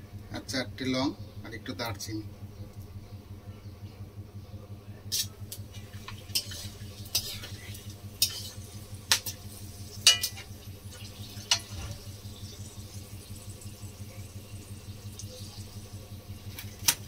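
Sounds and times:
spices sizzling in oil: 5.1 - 17.0
metal spatula knocking pan: 10.0 - 10.5.

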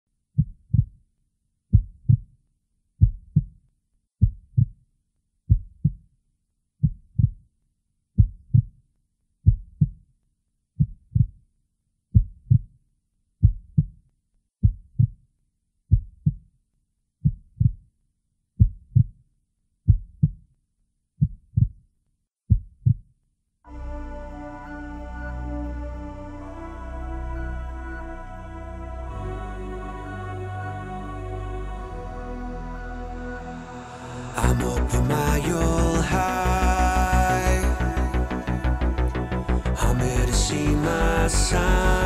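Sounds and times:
heartbeat thumps: 1.8 - 2.2, 4.2 - 4.7, 8.2 - 8.7, 11.1 - 11.3.

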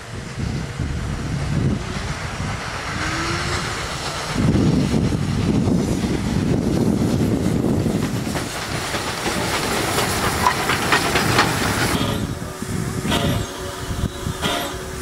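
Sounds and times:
hissing steam: 0.0 - 15.0
steam locomotive rumble: 0.0 - 15.0
wheels clanking and clicking: 7.7 - 12.3, 14.4 - 14.8.

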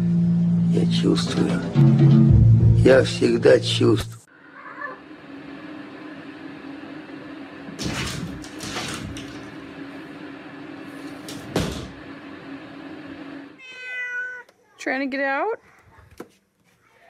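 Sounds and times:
steady low hum: 0.0 - 13.6
ceiling tile rattling and scraping: 7.8 - 9.6.

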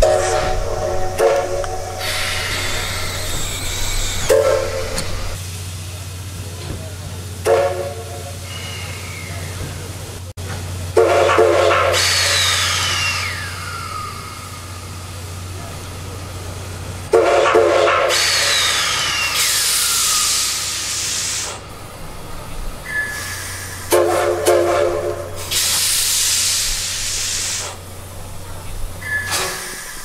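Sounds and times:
steam locomotive whistle: 0.0 - 5.4, 7.4 - 9.5, 10.9 - 15.0, 17.1 - 21.6, 22.8 - 27.7
steam hissing: 0.0 - 30.0.

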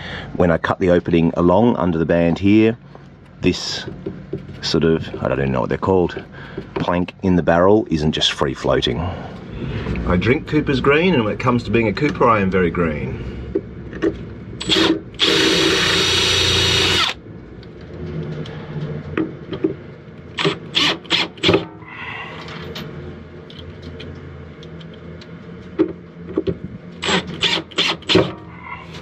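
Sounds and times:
cordless drill driving screws: 14.6 - 17.2, 20.4 - 21.6, 27.0 - 28.3.

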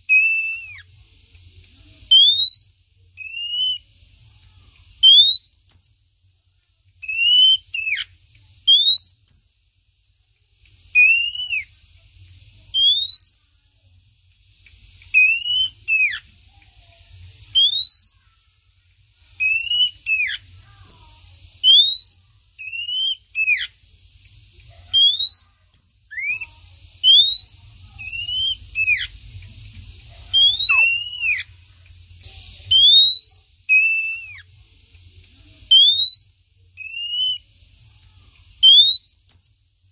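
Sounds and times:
bird whistled call notes: 0.0 - 0.9, 2.1 - 3.9, 5.0 - 6.0, 7.0 - 9.5, 10.9 - 11.7, 12.7 - 13.4, 15.1 - 16.3, 17.5 - 18.2, 19.4 - 20.5, 21.6 - 23.8, 24.9 - 29.2, 30.3 - 31.5, 32.4 - 34.5, 35.7 - 37.5, 38.6 - 39.6.

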